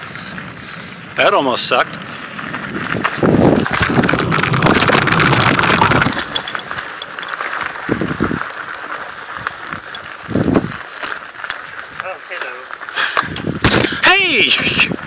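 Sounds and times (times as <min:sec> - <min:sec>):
bike rattling over rough trail: 0:00.0 - 0:15.0
tyres crunching on dirt: 0:01.2 - 0:15.0
wind buffeting microphone: 0:01.9 - 0:08.7, 0:09.3 - 0:10.8, 0:13.2 - 0:15.0.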